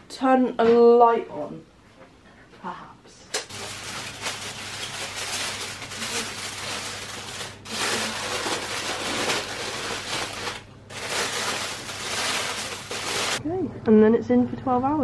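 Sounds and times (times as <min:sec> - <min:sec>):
aluminium foil crinkling: 0:03.5 - 0:13.4.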